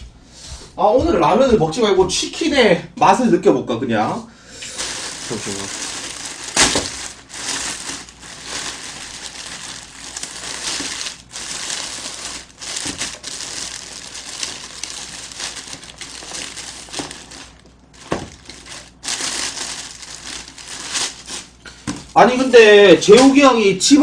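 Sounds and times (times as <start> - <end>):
plastic bag rustling and crinkling: 4.6 - 23.4.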